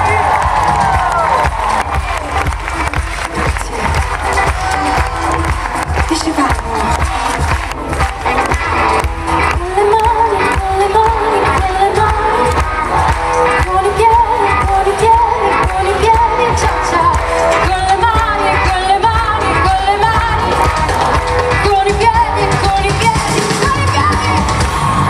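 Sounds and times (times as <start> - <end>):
live pop band playing: 0.0 - 25.0
person singing: 6.2 - 24.8.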